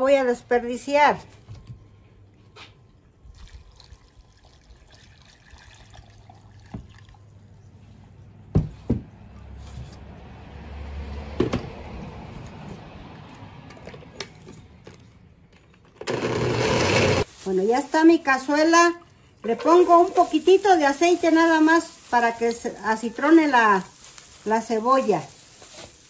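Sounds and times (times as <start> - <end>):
water pouring into blender jar: 3.3 - 7.3.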